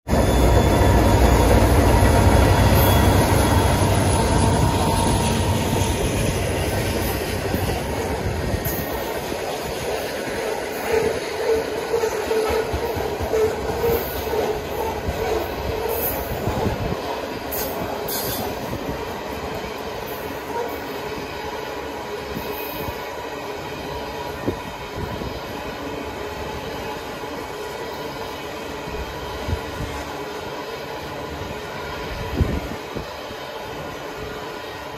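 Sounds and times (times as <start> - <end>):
train wheels rumbling on rail: 0.0 - 34.9
train cars clunking: 0.1 - 20.9.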